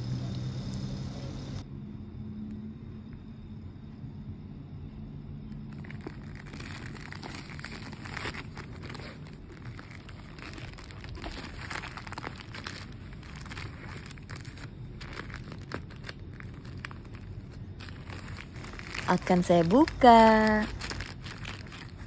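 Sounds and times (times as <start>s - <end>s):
low background rumble: 0.0s - 22.0s
plastic bag crinkling: 5.7s - 22.0s.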